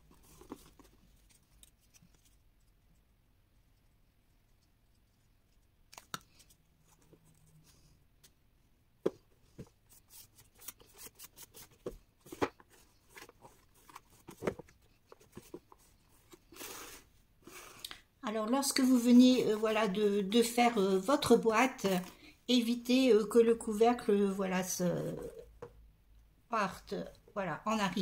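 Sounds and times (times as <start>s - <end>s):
paper rustles: 0.0s - 2.4s, 9.9s - 17.0s.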